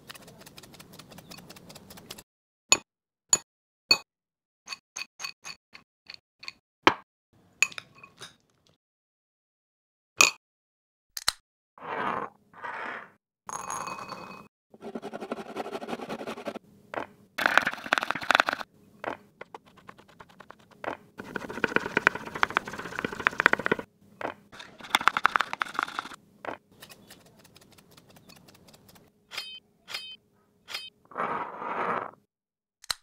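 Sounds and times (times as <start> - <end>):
carrot grated on metal grater: 19.5 - 23.8
knife chopping on wooden board: 21.2 - 23.8.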